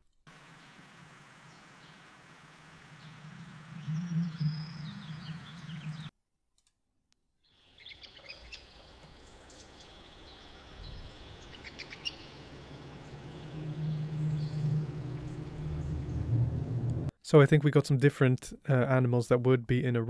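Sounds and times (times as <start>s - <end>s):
steady background ambience: 0.3s - 6.1s, 8.0s - 17.1s
birds chirping and singing: 3.0s - 6.1s, 7.6s - 16.4s.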